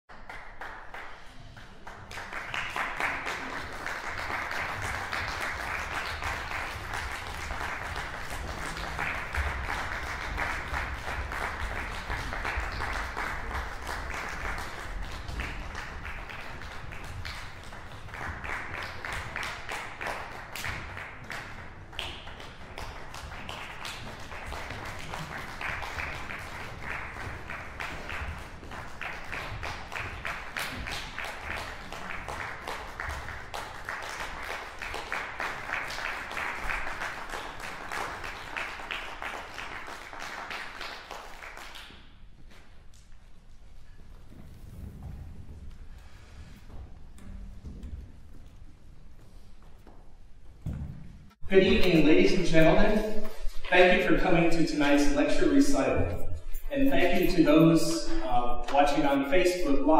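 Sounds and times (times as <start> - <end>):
audience applauding: 0.1 - 42.0.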